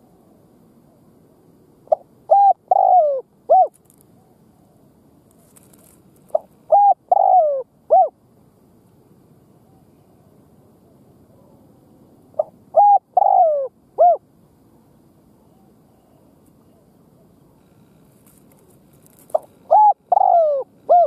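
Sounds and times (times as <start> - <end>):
dove cooing: 1.8 - 4.8, 5.6 - 8.2, 12.4 - 14.2, 19.1 - 21.0.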